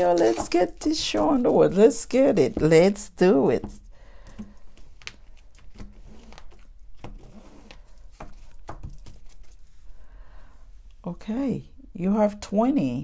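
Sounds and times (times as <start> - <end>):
cards being shuffled: 0.0 - 2.7, 3.7 - 9.9.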